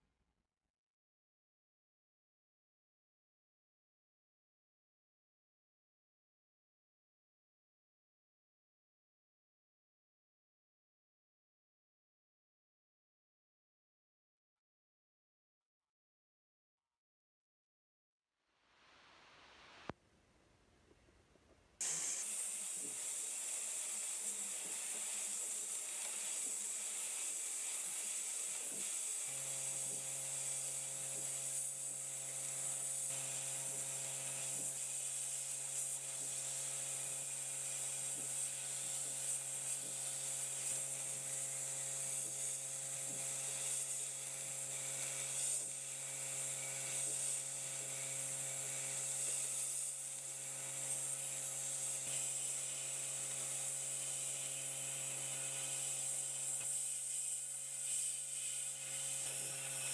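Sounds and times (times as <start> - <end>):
sandblast gun hissing: 21.8 - 59.9.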